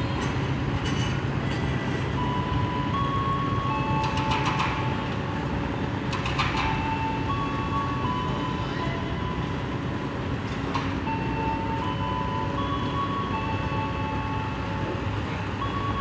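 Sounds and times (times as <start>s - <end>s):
low train rumble: 0.0s - 16.0s
wheels clicking on rail joints: 3.2s - 16.0s.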